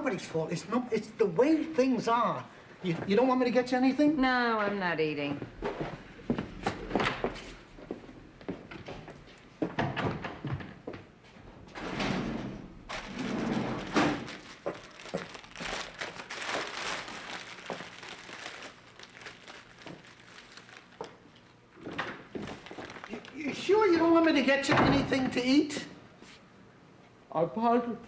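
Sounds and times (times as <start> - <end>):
paper bag crinkling: 12.9 - 23.5.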